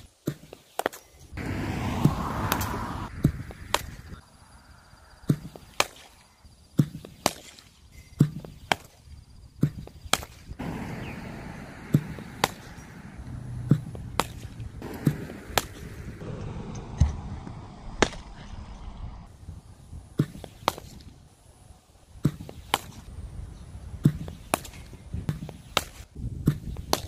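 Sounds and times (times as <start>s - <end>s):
cricket bat hitting balls: 0.2s - 4.3s, 5.2s - 9.0s, 9.6s - 16.2s, 18.0s - 18.4s, 20.2s - 21.2s, 22.2s - 23.2s, 24.0s - 27.0s.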